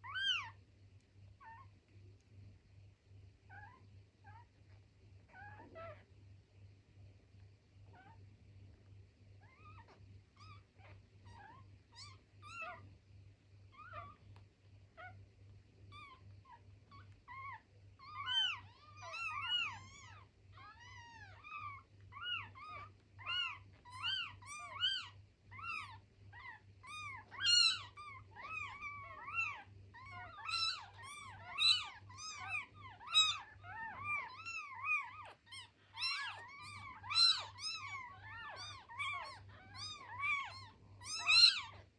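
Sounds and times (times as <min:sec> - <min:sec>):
kittens mewing: 0:15.9 - 0:41.9.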